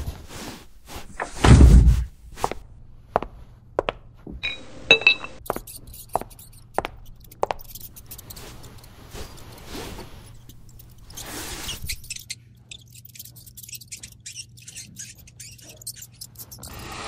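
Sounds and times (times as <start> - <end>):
ringing clinks: 4.4 - 5.4
soft rustle: 7.7 - 12.2.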